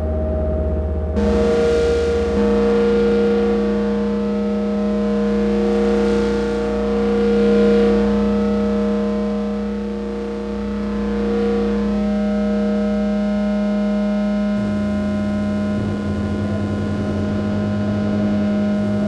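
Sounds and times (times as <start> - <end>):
low rumble: 0.0 - 5.0
synthesizer drone: 0.0 - 19.0.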